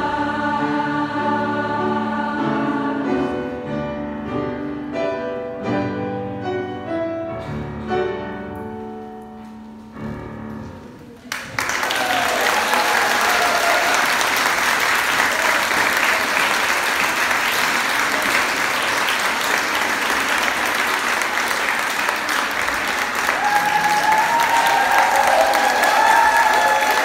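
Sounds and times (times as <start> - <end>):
audience applauding: 11.2 - 27.0
voices over clapping: 11.3 - 27.0.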